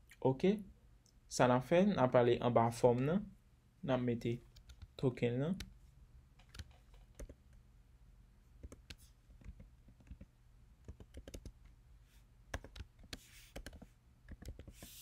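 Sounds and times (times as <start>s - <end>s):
low steady hum: 0.0s - 15.0s
typing on keyboard: 6.4s - 7.4s, 8.6s - 11.6s, 12.5s - 14.7s.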